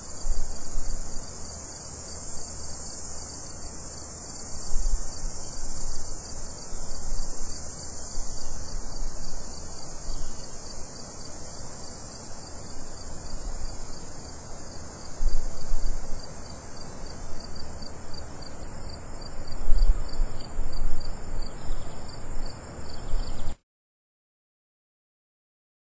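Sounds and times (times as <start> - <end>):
wind rumbling on microphone: 0.0 - 1.3, 4.5 - 10.8, 15.0 - 16.3, 19.2 - 23.6
insects buzzing shrilly: 0.0 - 23.6
insects chirping in pulses: 0.0 - 23.6.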